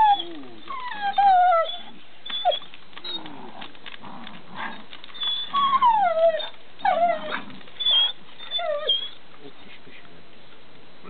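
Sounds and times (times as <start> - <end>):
dog whining: 0.0 - 3.7, 4.3 - 9.2.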